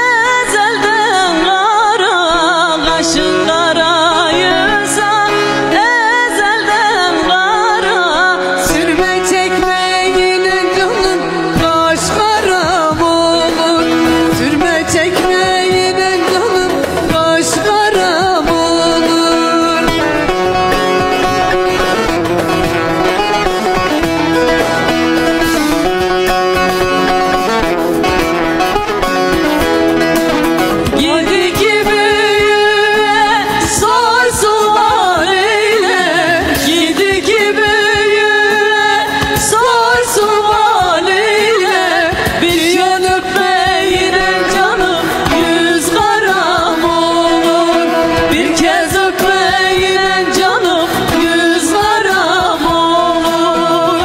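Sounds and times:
women singing: 0:00.0 - 0:21.3, 0:30.8 - 0:54.0
plucked string instrument: 0:00.0 - 0:54.0.

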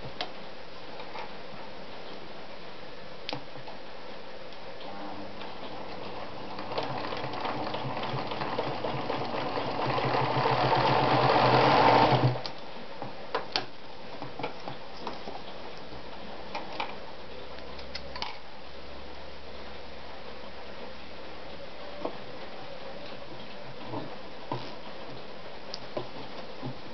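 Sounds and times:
sewing machine stitching: 0:05.6 - 0:12.5.

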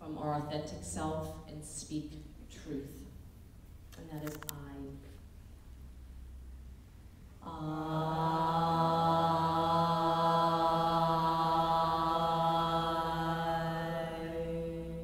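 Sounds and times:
woman chanting a steady tone: 0:07.4 - 0:15.0.

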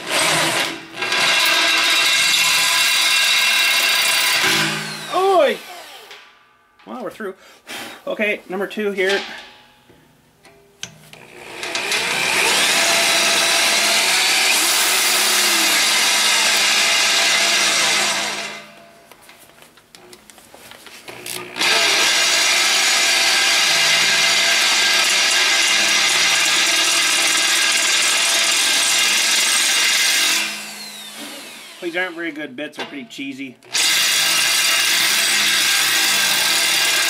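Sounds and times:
drill press cutting metal: 0:00.0 - 0:06.2, 0:11.2 - 0:18.7, 0:21.1 - 0:31.9, 0:33.7 - 0:37.0.

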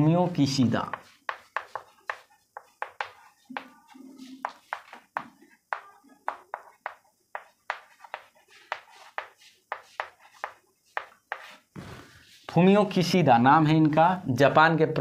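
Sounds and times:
chalk tapping on chalkboard: 0:00.8 - 0:12.5.

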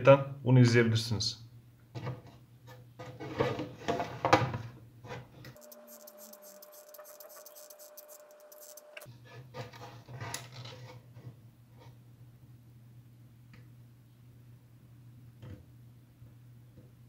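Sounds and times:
plastic parts rubbing and knocking: 0:05.6 - 0:09.0.

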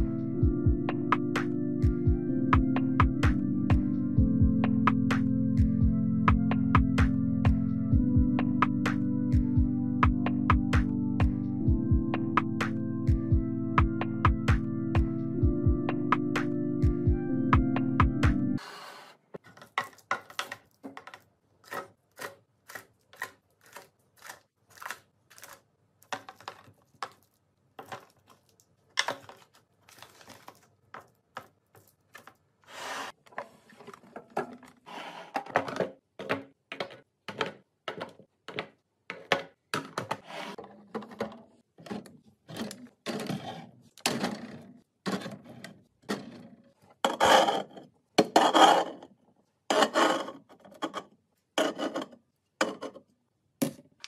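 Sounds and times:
small taps and clicks of food items: 0:19.4 - 0:32.4, 0:36.2 - 0:40.1
can scraping on fridge shelf: 0:47.0 - 0:49.1, 0:49.7 - 0:52.9.

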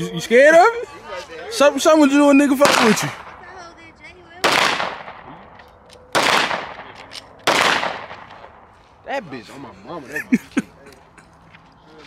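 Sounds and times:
handgun shots with echo: 0:04.4 - 0:05.2, 0:06.1 - 0:08.4.

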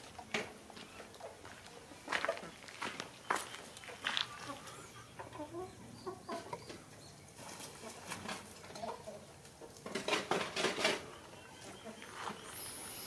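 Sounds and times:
chickens clucking softly: 0:03.5 - 0:13.0.

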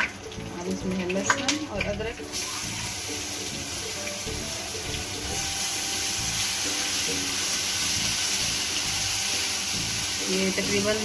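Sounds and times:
paste sizzling in hot oil: 0:00.3 - 0:11.0.

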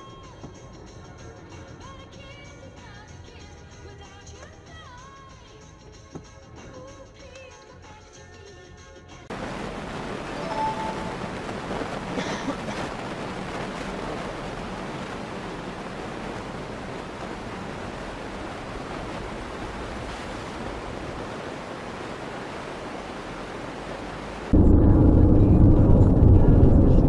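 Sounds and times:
tyre and road noise: 0:09.3 - 0:27.0
sudden loud sound: 0:24.5 - 0:27.0.

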